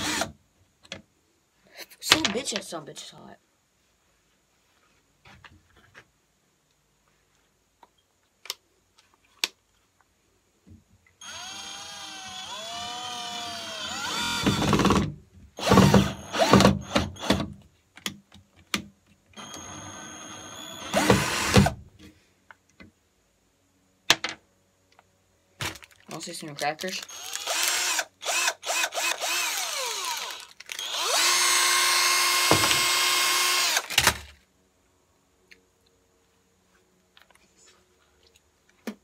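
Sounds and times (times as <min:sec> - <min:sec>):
cordless drill motor running: 0:00.0 - 0:00.3, 0:11.2 - 0:15.0, 0:15.6 - 0:17.4, 0:19.4 - 0:21.7, 0:27.0 - 0:34.0
drill bursts under load: 0:00.0 - 0:00.4, 0:11.2 - 0:15.0, 0:15.6 - 0:17.4, 0:19.4 - 0:21.8, 0:27.0 - 0:34.2.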